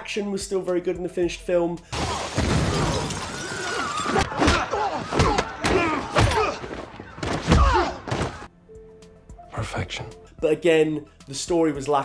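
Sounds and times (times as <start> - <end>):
punch and body impact hits: 4.2 - 8.5.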